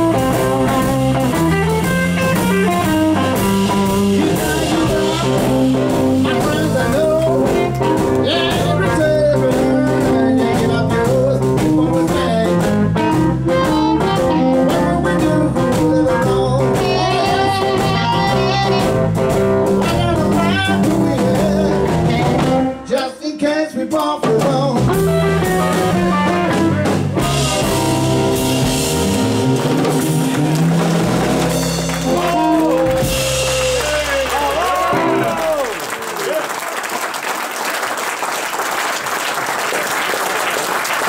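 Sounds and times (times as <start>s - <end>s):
blues band playing: 0.0s - 37.4s
audience clapping: 29.4s - 41.0s.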